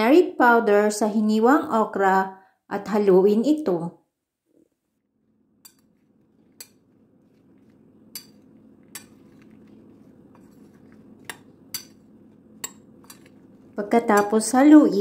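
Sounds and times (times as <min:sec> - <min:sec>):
faint low hum: 0:04.6 - 0:15.0
metal spoon clinking on bowl: 0:05.6 - 0:05.9, 0:08.1 - 0:09.5, 0:11.2 - 0:12.0, 0:12.6 - 0:13.4, 0:14.1 - 0:14.5.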